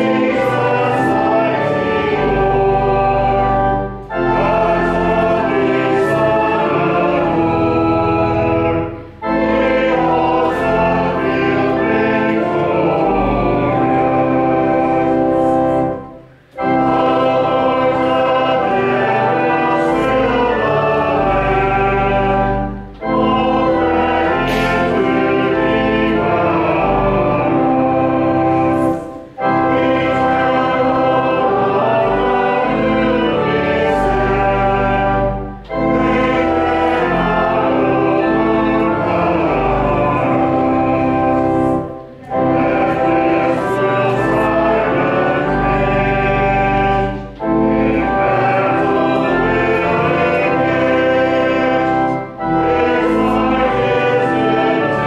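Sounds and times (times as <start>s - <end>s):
choir singing: 0.0s - 55.0s
instrumental accompaniment: 0.0s - 55.0s.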